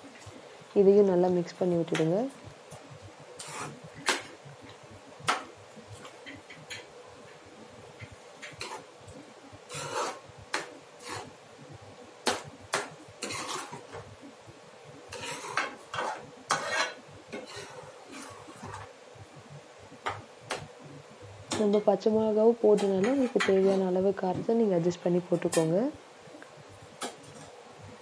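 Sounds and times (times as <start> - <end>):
spoon scraping and clinking on metal pan: 15.1 - 17.7.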